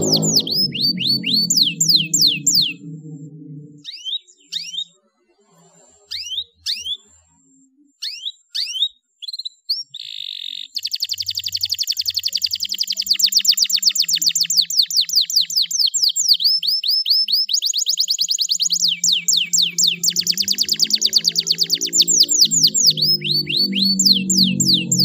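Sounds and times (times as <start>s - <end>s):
canary chirping: 0.0s - 5.0s, 6.1s - 7.1s, 8.0s - 25.0s
fast falling bird trill: 18.4s - 25.0s.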